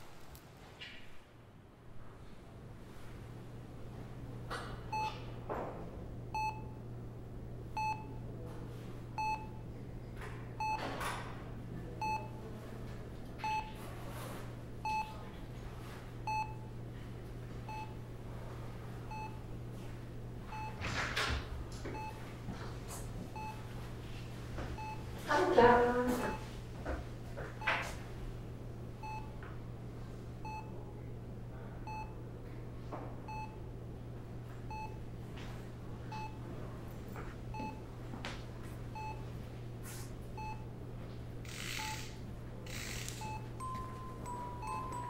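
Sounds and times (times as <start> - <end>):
patient monitor beeping: 4.9 - 5.3, 6.3 - 6.8, 7.6 - 8.3, 9.1 - 9.7, 10.6 - 10.9, 11.9 - 12.5, 13.4 - 13.8, 14.8 - 15.2, 16.2 - 16.8, 17.6 - 18.1, 19.0 - 19.6, 20.4 - 21.0, 21.9 - 22.3, 23.2 - 23.8, 24.7 - 26.6, 29.0 - 29.4, 30.4 - 30.9, 31.8 - 32.2, 33.3 - 33.7, 34.7 - 35.0, 36.0 - 36.5, 37.5 - 37.9, 38.9 - 39.4, 40.4 - 40.7, 41.5 - 45.0.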